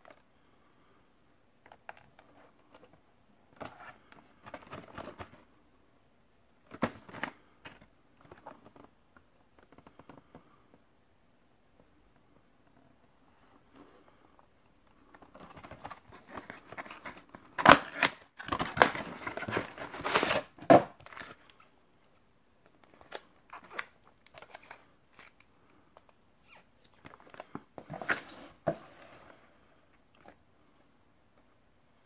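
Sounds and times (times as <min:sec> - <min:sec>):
cardboard box rustling: 0:15.2 - 0:21.4.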